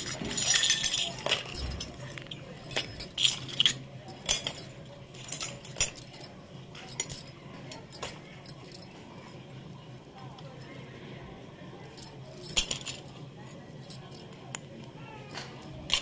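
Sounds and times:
toy metal pots clinking: 0.0 - 8.9, 13.8 - 16.0.

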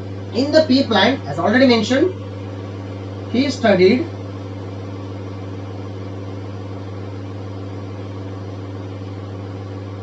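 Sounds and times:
constant hiss: 0.0 - 4.7
low electrical hum: 0.0 - 10.0.

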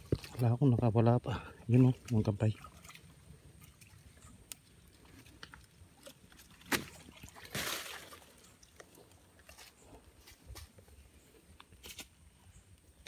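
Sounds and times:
faint outdoor background: 0.0 - 13.0
water splash: 5.0 - 8.5.

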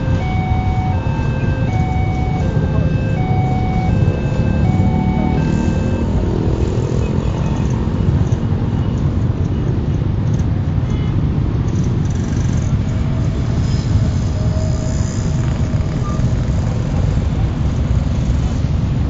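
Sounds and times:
two-tone crossing warning signal: 0.0 - 9.7.

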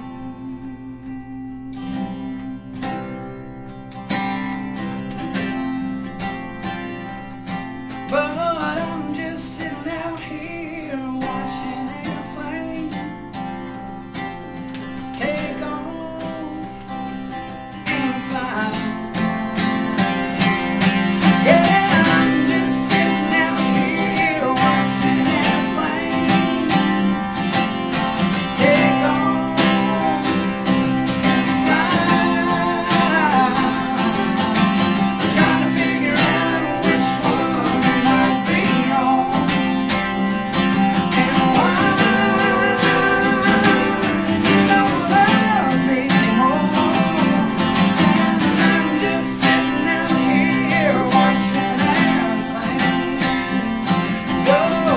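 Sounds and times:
strummed acoustic guitar: 0.0 - 54.9
country band playing: 16.4 - 54.9.

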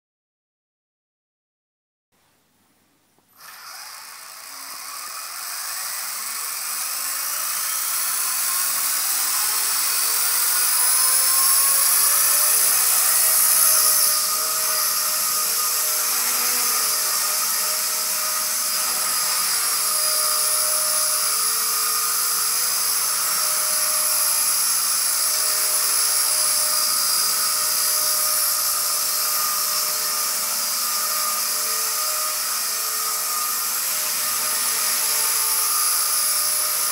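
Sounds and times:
rc helicopter motor whine: 3.3 - 36.9.

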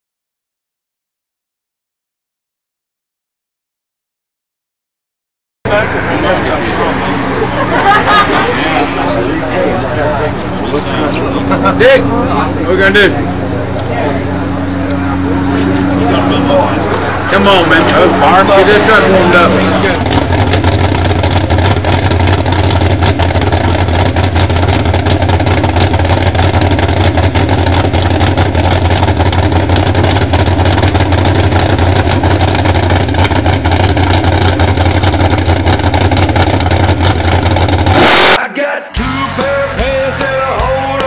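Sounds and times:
race car engine running: 5.7 - 38.4
engine full-throttle blast: 5.7 - 41.0
rock music: 37.9 - 41.0.

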